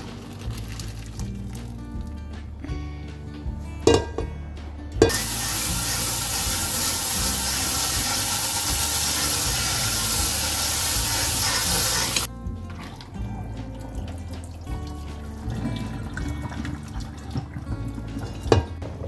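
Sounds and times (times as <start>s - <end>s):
tap water running into colander: 5.0s - 13.0s, 14.7s - 18.7s.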